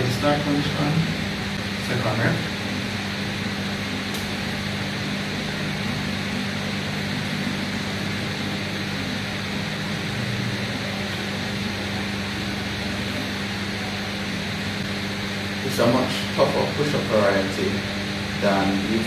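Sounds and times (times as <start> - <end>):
machine hum with hiss: 0.0 - 19.0.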